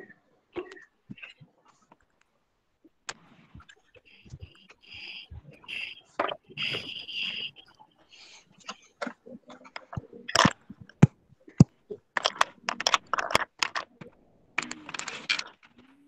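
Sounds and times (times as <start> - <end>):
clicks taps and knocks: 8.6 - 15.9.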